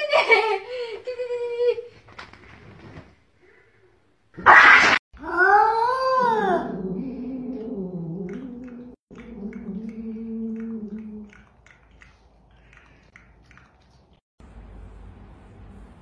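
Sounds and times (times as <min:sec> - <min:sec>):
faint clicks: 0:07.6 - 0:14.2.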